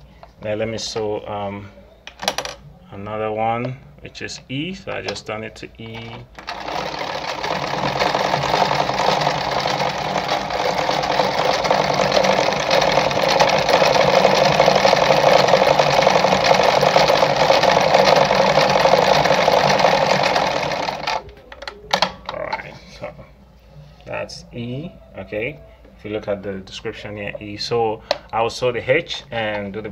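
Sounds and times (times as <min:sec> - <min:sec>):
sewing machine needle clattering: 0:06.0 - 0:21.2.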